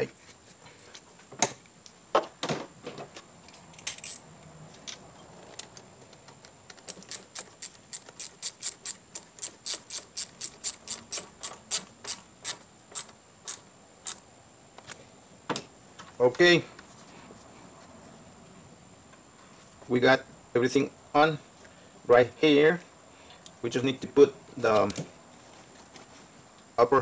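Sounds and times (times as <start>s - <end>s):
hand tool clicking: 6.4s - 14.2s.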